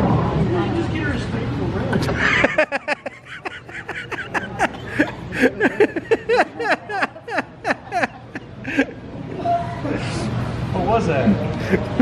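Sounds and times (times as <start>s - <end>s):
person giggling: 2.2s - 9.0s.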